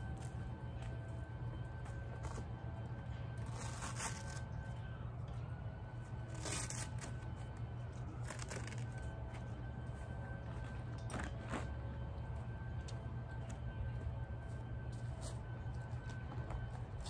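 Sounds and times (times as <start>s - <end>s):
velcro ripping: 3.4s - 4.5s, 6.3s - 7.3s, 8.2s - 9.1s.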